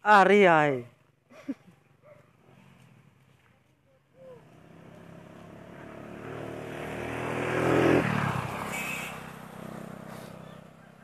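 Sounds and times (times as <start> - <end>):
vehicle engine passing by: 4.2 - 11.0.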